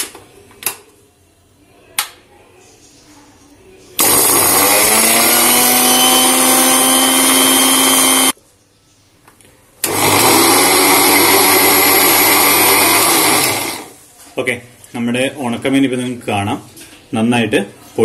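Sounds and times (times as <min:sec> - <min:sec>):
electric mixer grinder whining: 0:04.0 - 0:08.4, 0:09.8 - 0:14.0.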